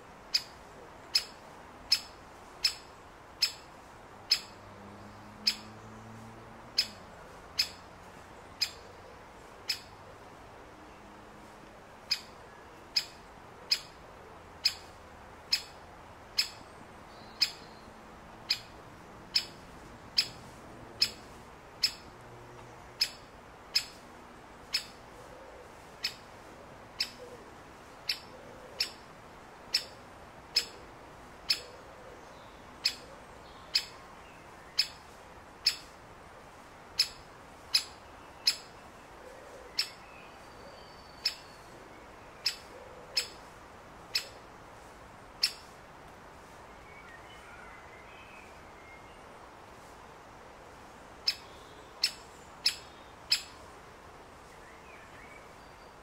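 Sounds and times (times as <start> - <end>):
woodpecker sharp kik call: 1.1 - 3.7, 4.3 - 4.6, 5.4 - 5.7, 7.6 - 7.8, 9.7 - 9.9, 12.1 - 12.3, 13.0 - 14.0, 14.6 - 14.9, 15.5 - 15.8, 16.4 - 16.6, 17.4 - 17.7, 18.5 - 18.7, 19.3 - 19.6, 20.2 - 20.4, 21.0 - 21.2, 21.8 - 22.0, 23.0 - 24.0, 27.0 - 27.3, 28.1 - 29.0, 29.7 - 30.0, 33.7 - 33.9, 35.6 - 35.9, 37.0 - 38.7, 42.4 - 43.4, 44.1 - 44.4, 45.4 - 45.7, 51.2 - 53.6.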